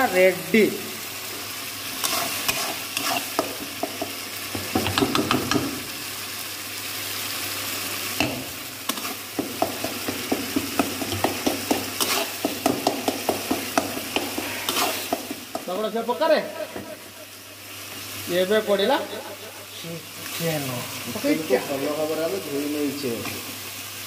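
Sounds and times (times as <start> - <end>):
masala sizzling in a pan: 0.0 - 24.0
spatula scraping a pan: 2.0 - 3.9, 8.9 - 15.6.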